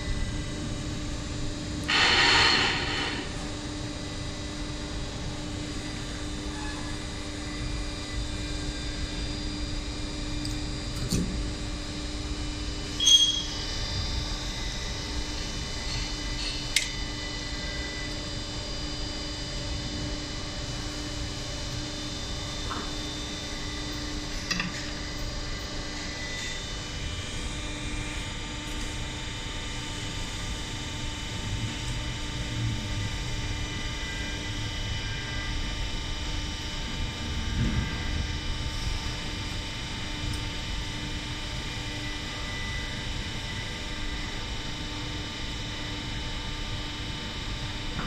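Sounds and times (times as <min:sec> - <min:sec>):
electrical machine hum: 0:00.0 - 0:48.0.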